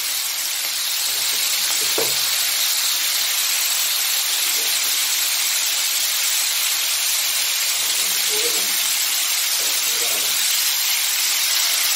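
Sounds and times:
food sizzling in a hot pan: 0:00.0 - 0:11.9.

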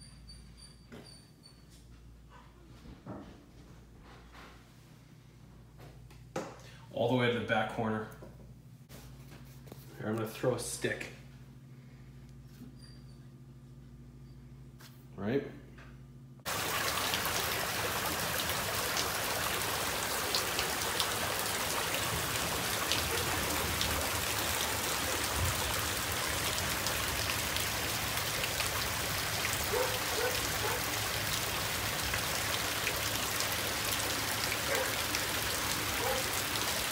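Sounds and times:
floodwater running: 0:16.5 - 0:36.9
steady rain falling: 0:16.5 - 0:36.9.

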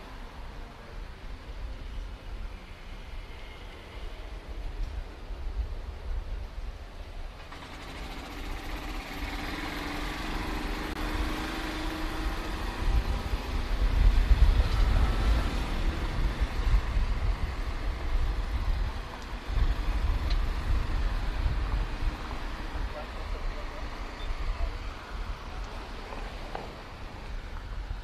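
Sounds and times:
wind rumble on microphone: 0:00.4 - 0:07.4, 0:10.9 - 0:28.0
vehicle engine passing: 0:07.5 - 0:27.0.

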